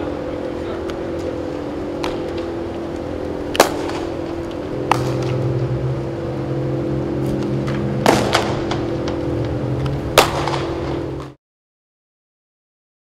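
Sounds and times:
low fan hum: 0.0s - 11.4s
baseball cracks: 2.0s - 5.5s, 7.3s - 11.4s.

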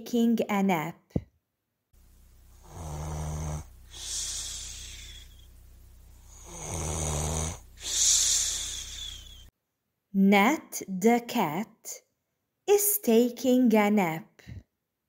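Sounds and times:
person snoring: 2.5s - 9.5s.

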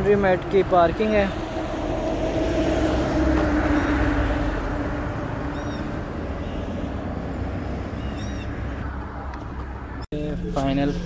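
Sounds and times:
passing vehicle hum: 0.0s - 11.0s
road traffic rumble: 0.0s - 11.0s
bird chirp: 5.5s - 6.9s, 7.9s - 8.7s.

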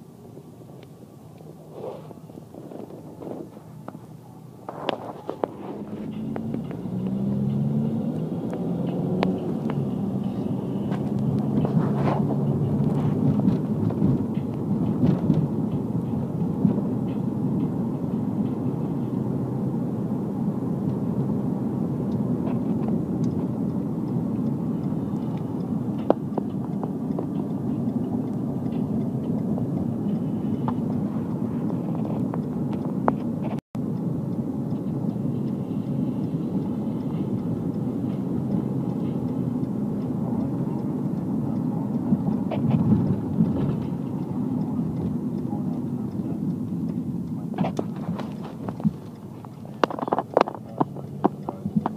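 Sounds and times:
car driving rumble from inside: 0.0s - 51.9s.

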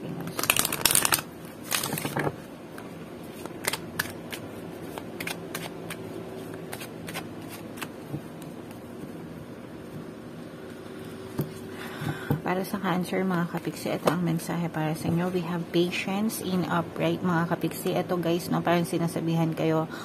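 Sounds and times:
cards being shuffled: 0.2s - 2.4s, 3.2s - 8.8s.

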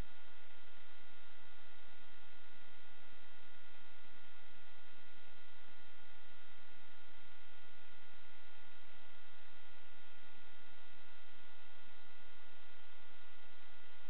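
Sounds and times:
electronic hum and hiss: 0.0s - 14.0s.

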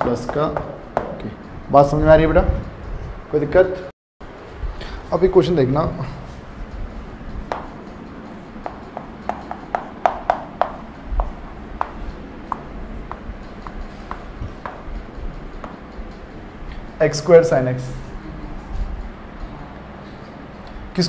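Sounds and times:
chalk writing on chalkboard: 7.5s - 14.9s.

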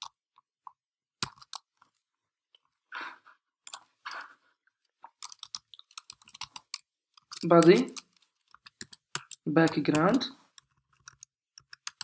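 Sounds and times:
computer mouse clicks: 1.2s - 1.7s, 3.7s - 3.9s, 5.2s - 12.0s.

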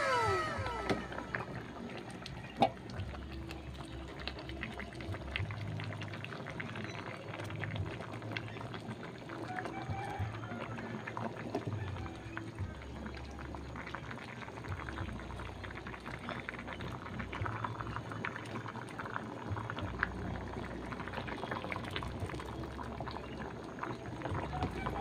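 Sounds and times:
low hum: 0.0s - 6.2s
stew boiling and bubbling: 0.0s - 25.0s.

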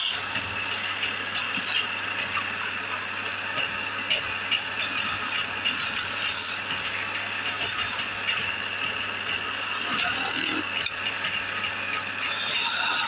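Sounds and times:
lathe motor hum: 0.0s - 13.0s
chisel rasping on spinning wood: 1.3s - 3.8s, 4.5s - 6.8s, 7.5s - 8.2s, 8.9s - 13.0s
high-pitched tool squeals: 4.8s - 6.6s, 7.6s - 8.0s, 9.4s - 10.6s, 12.2s - 13.0s.

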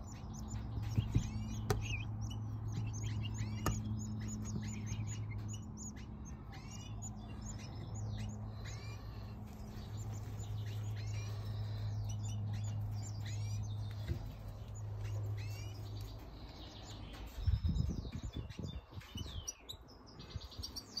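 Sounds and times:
low thumps and rumbles: 0.0s - 8.4s, 9.4s - 19.5s
goldfinches chirping: 0.0s - 21.0s
steady low hum: 0.0s - 21.0s.

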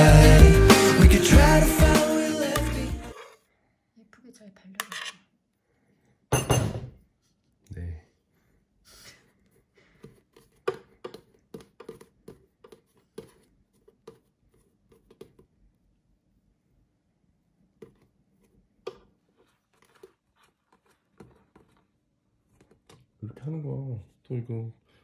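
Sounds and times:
spatula scraping and tapping: 9.9s - 15.5s, 17.8s - 21.9s.

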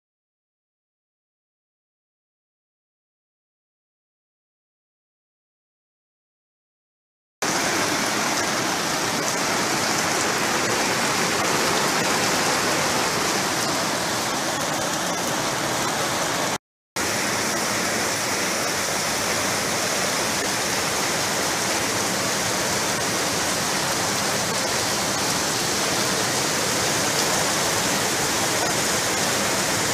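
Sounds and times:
heavy rain pouring: 7.4s - 29.9s.

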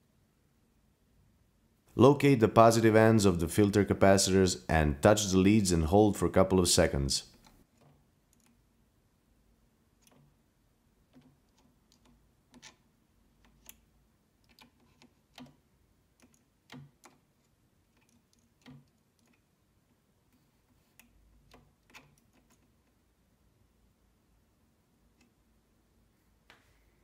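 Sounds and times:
metal probe clicking: 10.0s - 10.4s.

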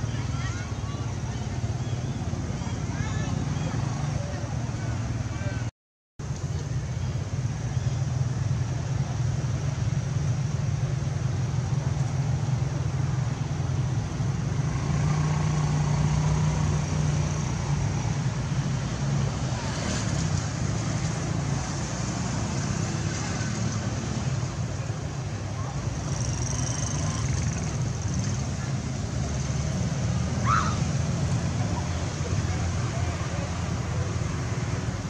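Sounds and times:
distant faint voices: 0.0s - 5.7s, 19.4s - 35.0s.

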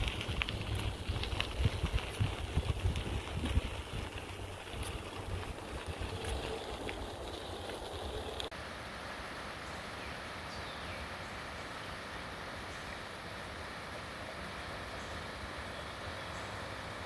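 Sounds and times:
bicycle tyres crunching on gravel: 0.0s - 8.5s
wind on microphone: 0.0s - 8.5s.

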